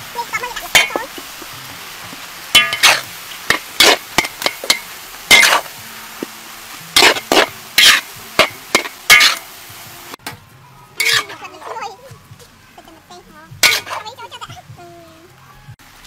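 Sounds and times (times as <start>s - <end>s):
frying hiss: 0.0s - 16.0s
metal spatula scraping a wok: 2.5s - 5.8s, 6.9s - 9.5s, 11.0s - 11.9s, 13.6s - 14.3s.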